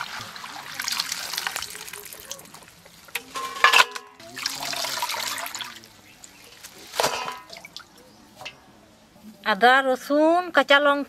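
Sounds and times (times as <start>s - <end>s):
water splashing in a bowl: 0.0s - 8.0s
steel bowls clanking: 3.1s - 4.2s, 7.0s - 7.8s.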